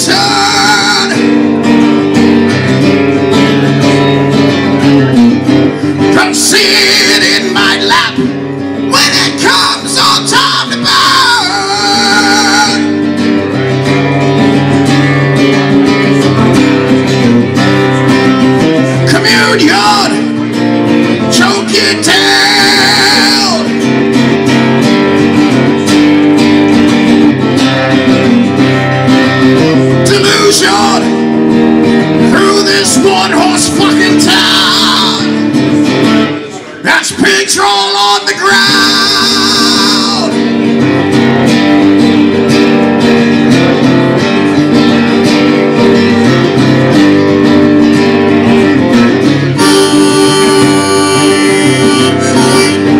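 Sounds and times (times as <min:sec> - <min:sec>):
man singing into microphone: 0:00.0 - 0:01.4, 0:06.0 - 0:13.0, 0:19.0 - 0:20.4, 0:21.2 - 0:23.7, 0:29.9 - 0:31.2, 0:32.2 - 0:35.5, 0:36.8 - 0:40.4, 0:49.5 - 0:52.9
electric guitar strummed: 0:00.0 - 0:52.9.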